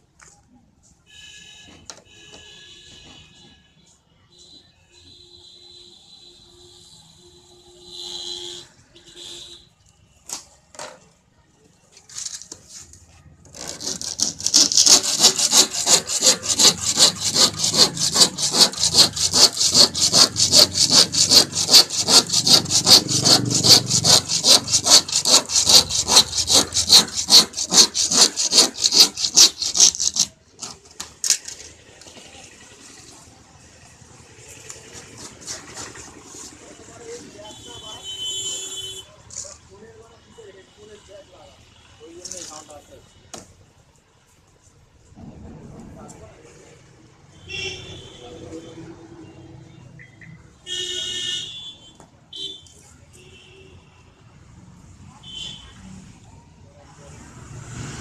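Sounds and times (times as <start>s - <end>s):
handsaw cutting plastic panel: 13.5s - 31.0s.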